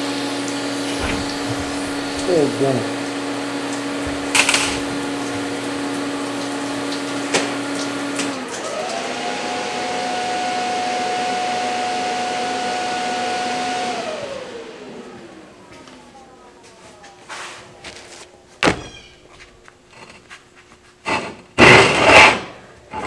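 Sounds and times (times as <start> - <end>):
electric motor humming: 0.0 - 17.1.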